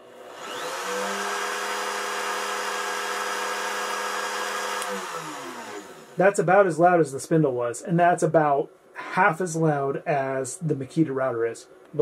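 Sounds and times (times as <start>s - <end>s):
router spinning with whine: 0.0s - 6.2s.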